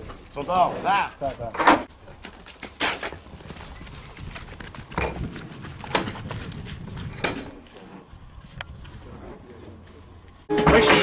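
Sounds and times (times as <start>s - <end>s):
bulls knocking in a corral: 1.3s - 8.0s.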